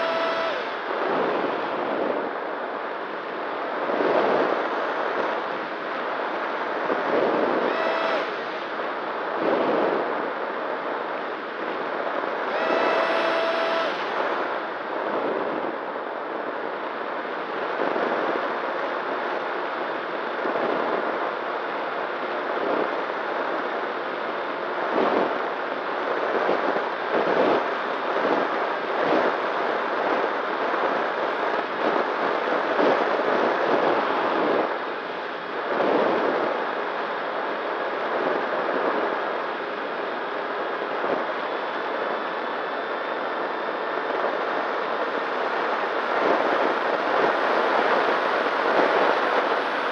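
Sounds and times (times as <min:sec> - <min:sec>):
faint motor hum: 0:00.0 - 0:05.5, 0:06.2 - 0:16.4.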